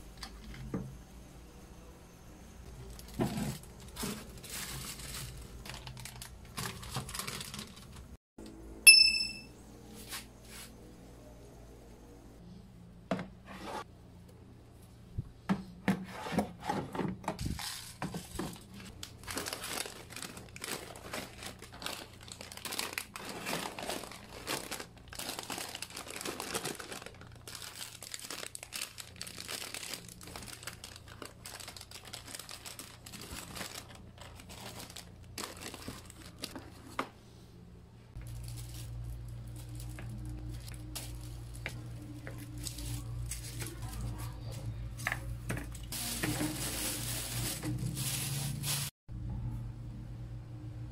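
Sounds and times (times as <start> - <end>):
plastic packets crinkling: 2.8 - 8.2, 17.4 - 37.0, 38.2 - 48.9
items knocking and clicking: 15.4 - 18.9, 45.0 - 46.6.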